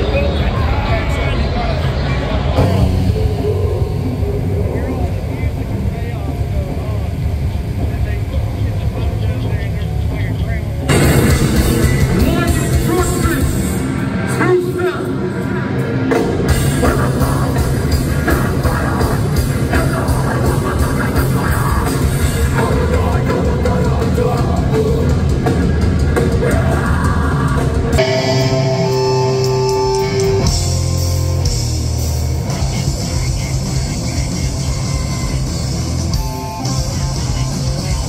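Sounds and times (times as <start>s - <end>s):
sustained held notes: 0.0s - 25.9s, 27.6s - 38.0s
live heavy metal band: 0.0s - 38.0s.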